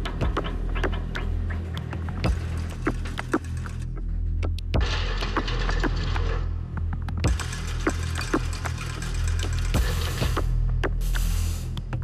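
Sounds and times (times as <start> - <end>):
hiss: 10.0 - 11.8.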